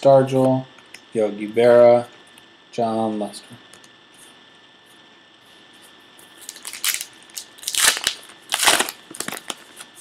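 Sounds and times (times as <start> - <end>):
wrapper crinkling and tearing: 6.4 - 10.0.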